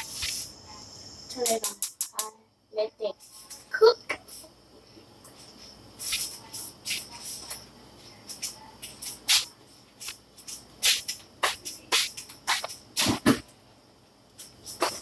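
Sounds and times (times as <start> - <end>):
rustles and scuffs: 5.4 - 13.4.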